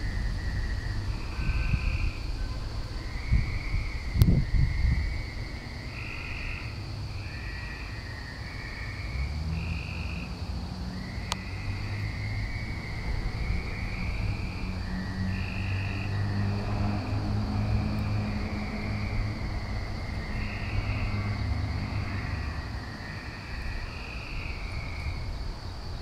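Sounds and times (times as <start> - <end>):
frogs calling: 0.0 - 26.0
low engine rumble: 6.6 - 26.0.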